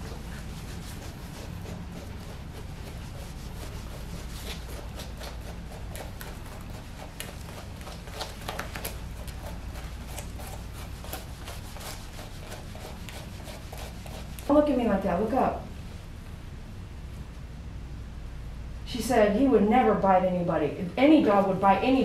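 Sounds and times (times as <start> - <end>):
brush scratching through fur: 0.0 - 14.5
steady low hum: 0.0 - 22.0.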